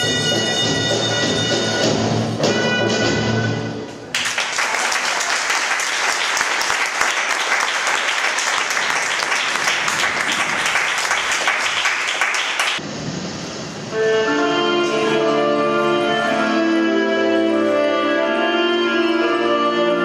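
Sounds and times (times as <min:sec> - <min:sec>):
audience applauding: 0:04.1 - 0:12.8.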